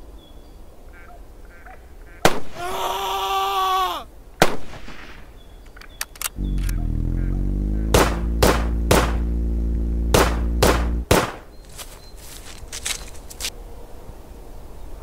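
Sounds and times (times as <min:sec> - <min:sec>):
gunshots: 0:02.2 - 0:02.6, 0:04.4 - 0:05.2, 0:07.8 - 0:09.3, 0:10.1 - 0:11.5
motorcycle engine running: 0:06.4 - 0:11.1.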